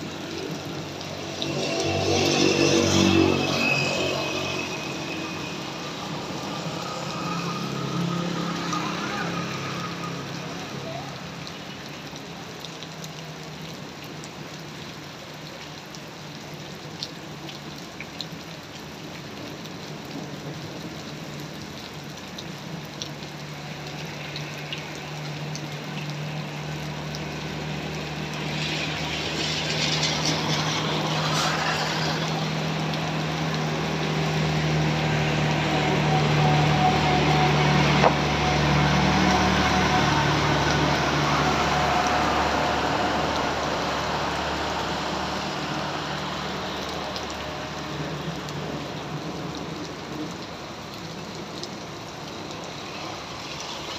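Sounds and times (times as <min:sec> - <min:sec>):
heavy rain falling: 0:00.0 - 0:53.9
tyres hissing through water: 0:23.6 - 0:49.6.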